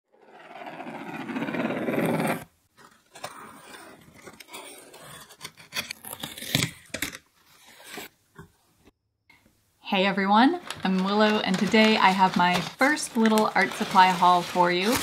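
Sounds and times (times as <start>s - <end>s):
knife slicing packing tape: 4.4s - 6.9s.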